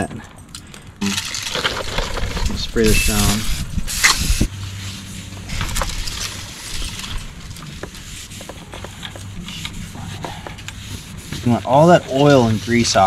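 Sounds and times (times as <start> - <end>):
towel rubbing on metal rotor: 2.5 - 3.6, 6.4 - 13.0.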